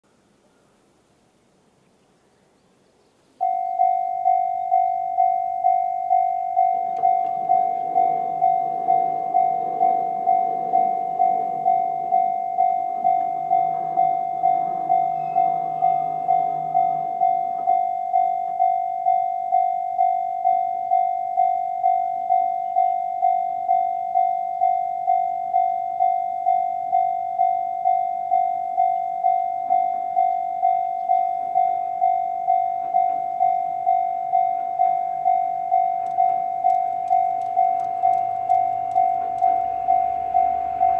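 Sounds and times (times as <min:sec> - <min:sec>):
level crossing warning bell: 0:03.4 - 0:40.9
barrier machines humming: 0:06.2 - 0:18.6, 0:31.8 - 0:40.9.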